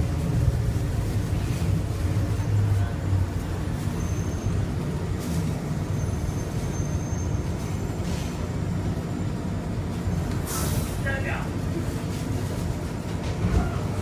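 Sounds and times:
train car rumbling on guideway: 0:00.0 - 0:14.0.

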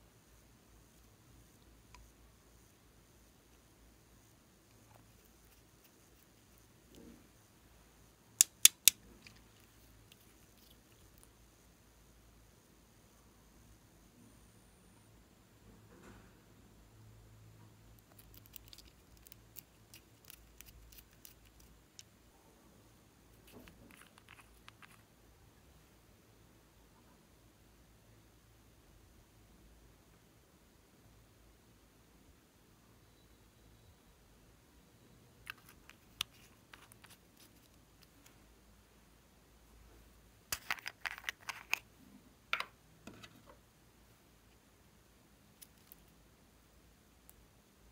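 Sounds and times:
small bottles and caps clicking: 0:08.4 - 0:11.3, 0:18.0 - 0:22.1, 0:23.5 - 0:25.0, 0:35.4 - 0:38.1, 0:40.5 - 0:41.9.

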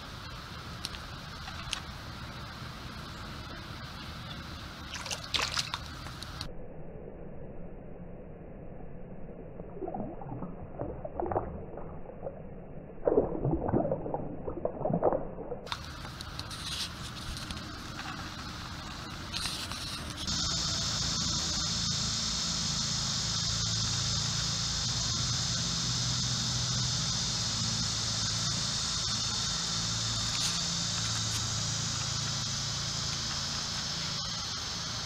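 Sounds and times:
low hum: 0:00.0 - 0:35.0
high-pitched insect drone: 0:15.8 - 0:35.0.

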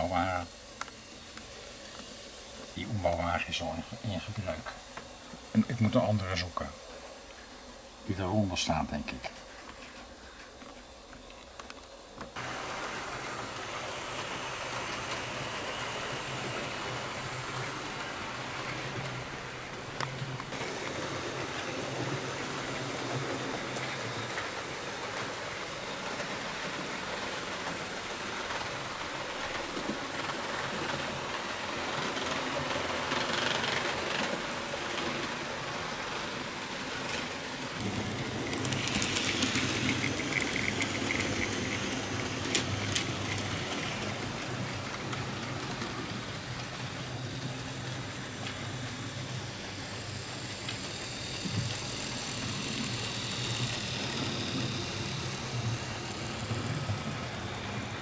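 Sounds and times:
model locomotive motor hum: 0:00.0 - 0:58.0
model train wheels rattling on rails: 0:12.3 - 0:58.0.

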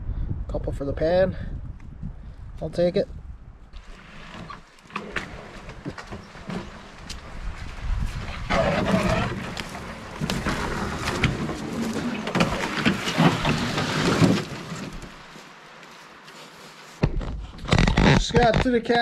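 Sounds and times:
canoe hull scraping brush: 0:03.8 - 0:18.5
footsteps in dry grass: 0:05.5 - 0:17.6.

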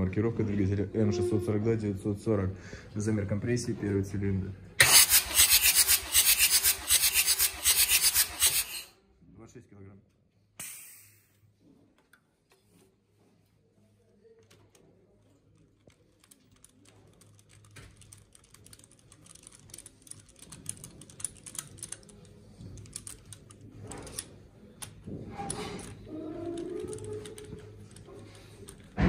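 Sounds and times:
hand tool clicking: 0:04.8 - 0:08.9.

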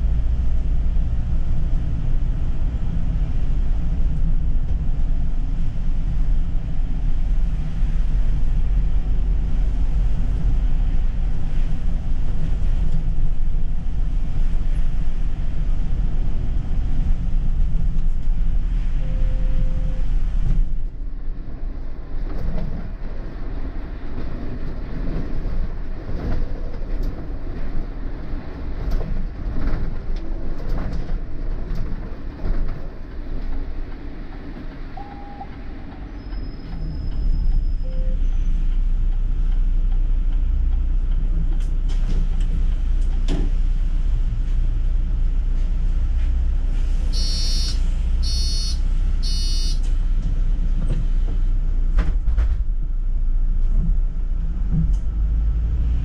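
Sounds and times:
bus ride rumble: 0:00.0 - 0:56.0
low engine drone: 0:37.8 - 0:56.0
short electronic beeps: 0:47.2 - 0:49.8.

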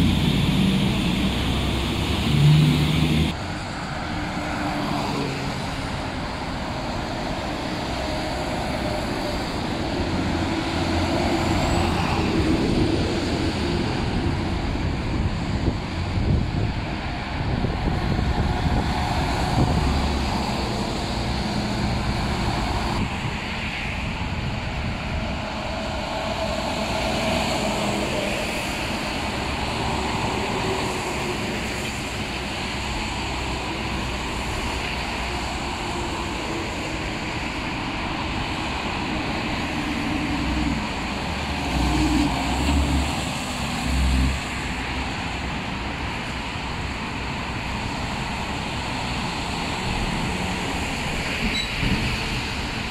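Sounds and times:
tyres hissing on wet pavement: 0:00.0 - 0:13.5, 0:24.6 - 0:52.9
vehicles driving past: 0:00.0 - 0:52.9.

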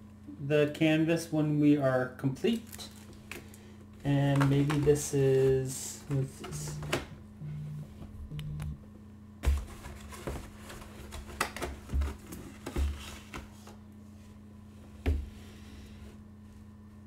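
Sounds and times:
steady low hum: 0:00.0 - 0:17.0
cardboard and paper rustling: 0:04.2 - 0:06.9, 0:09.4 - 0:13.8.

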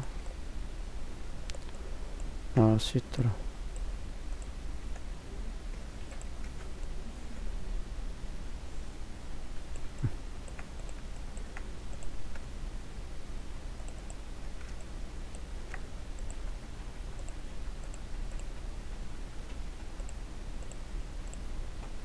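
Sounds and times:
low steady hum: 0:00.0 - 0:22.0
computer mouse and keyboard clicks: 0:01.5 - 0:01.8, 0:05.7 - 0:06.9, 0:09.7 - 0:12.5, 0:13.8 - 0:18.6.

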